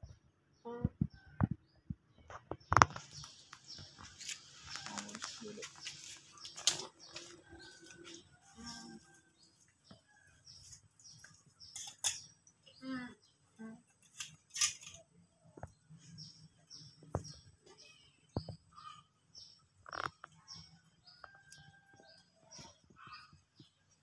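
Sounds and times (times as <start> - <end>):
faint voice: 12.8 - 13.8.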